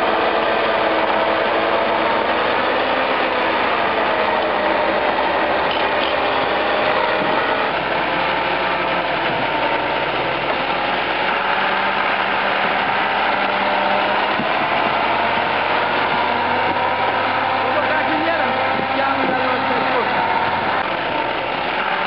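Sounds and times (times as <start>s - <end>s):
diesel truck engine running: 0.0s - 22.0s.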